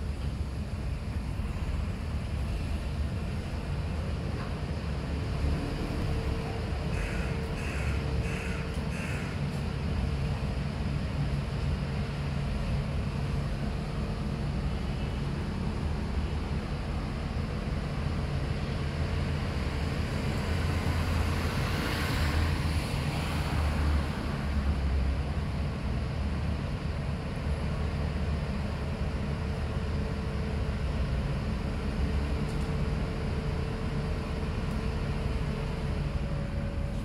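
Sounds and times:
street background rumble: 0:00.0 - 0:37.0.

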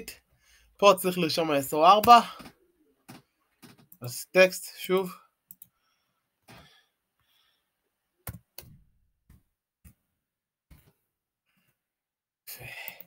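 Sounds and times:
computer keys clicking: 0:05.5 - 0:05.7
mouse clicking: 0:05.5 - 0:05.7.

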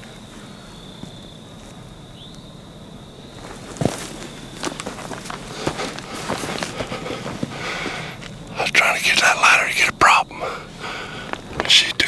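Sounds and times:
rustling in dry leaves: 0:03.3 - 0:08.5.

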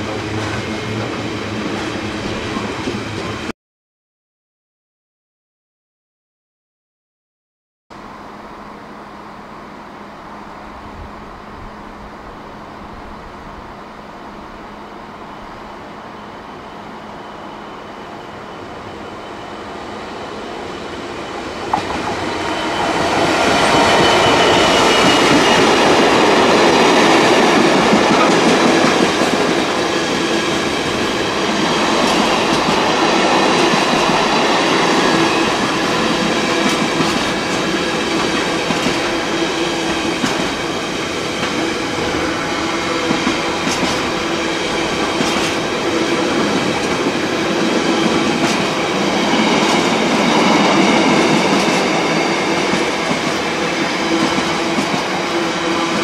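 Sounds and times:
freight train passing: 0:00.0 - 0:03.5, 0:08.0 - 0:56.0.

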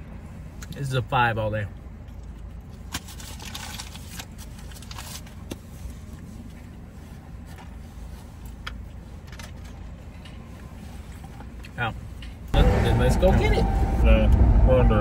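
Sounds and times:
food wrappers rustling: 0:02.7 - 0:05.4.

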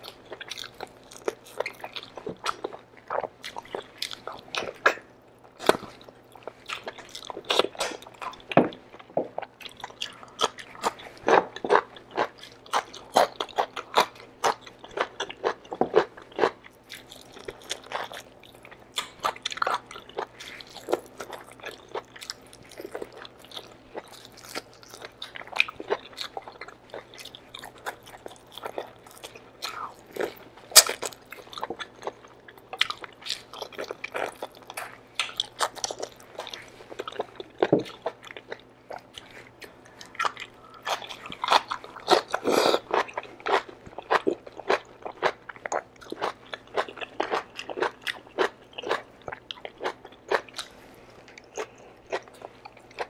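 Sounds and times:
person chewing meat: 0:00.0 - 0:53.0.

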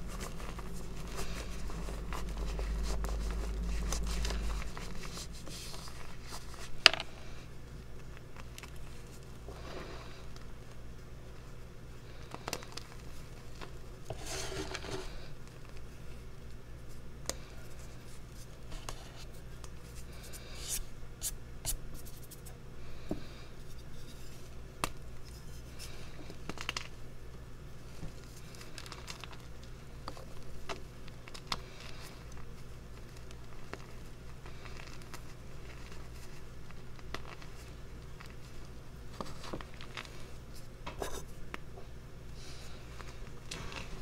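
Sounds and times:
low hum: 0:00.0 - 0:08.1.

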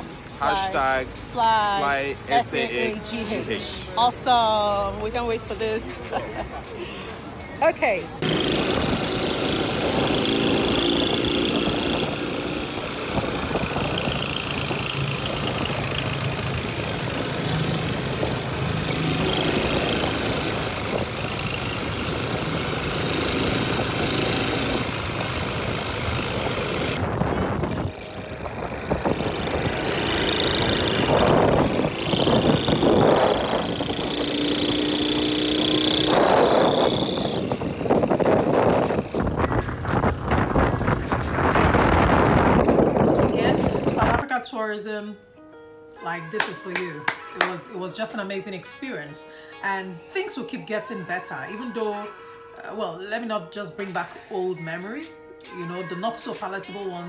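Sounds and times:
motorcycle engine running: 0:08.2 - 0:44.2
wind rushing over microphone: 0:08.2 - 0:44.2.

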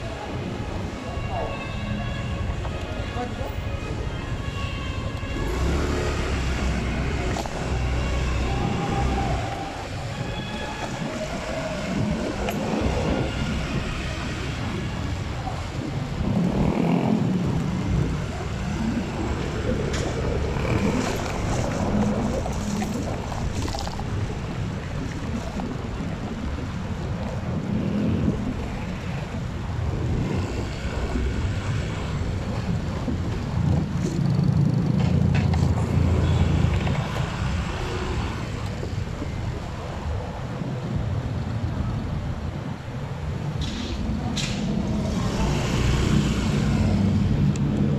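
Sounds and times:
vehicle engine and road rumble: 0:00.0 - 0:47.9
wind noise: 0:00.0 - 0:47.9.

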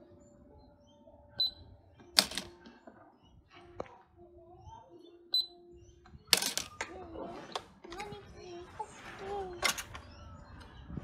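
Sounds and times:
toy cash register beeps: 0:01.4 - 0:02.5, 0:06.3 - 0:06.8.

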